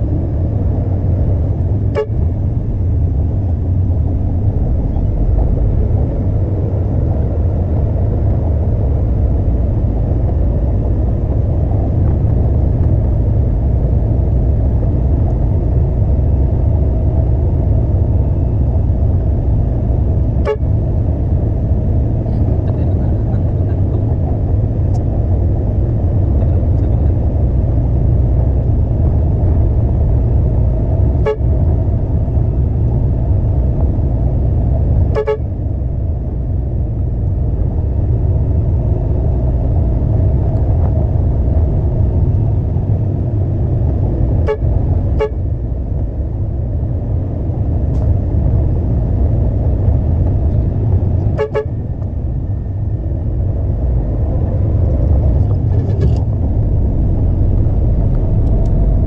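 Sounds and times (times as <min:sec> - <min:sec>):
truck engine rumbling: 0:00.0 - 0:59.0
short horn toots: 0:01.9 - 0:02.3, 0:35.1 - 0:35.5, 0:51.3 - 0:51.8.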